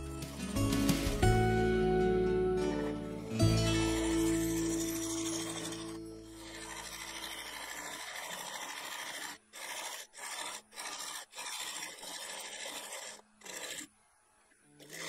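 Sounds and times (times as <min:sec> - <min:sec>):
lathe tool cutting wood: 0:02.8 - 0:13.9, 0:14.8 - 0:15.0.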